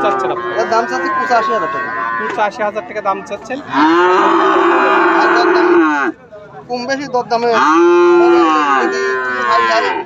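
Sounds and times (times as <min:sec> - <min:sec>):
cow mooing: 0:00.0 - 0:02.6, 0:03.6 - 0:06.1, 0:07.5 - 0:10.0.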